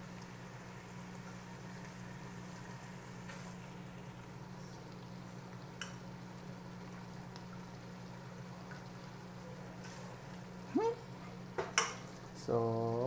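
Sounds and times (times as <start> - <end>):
pot simmering and bubbling: 0.0 - 13.0
small pops and ticks: 4.7 - 6.1, 7.3 - 7.6.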